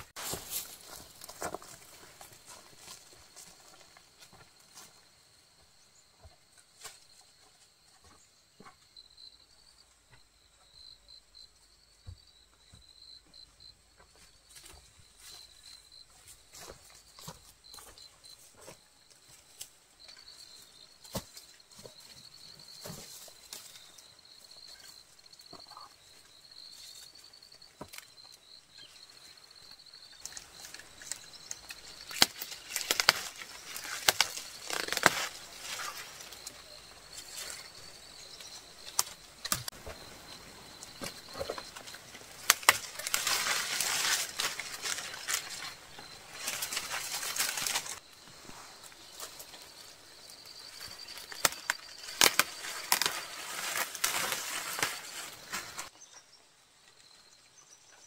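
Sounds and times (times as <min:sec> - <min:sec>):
leaves rustling: 0:00.0 - 0:04.7, 0:28.8 - 0:55.9
leaf stalks snapping: 0:30.2 - 0:36.5, 0:38.9 - 0:39.7, 0:41.0 - 0:48.0, 0:50.8 - 0:55.9.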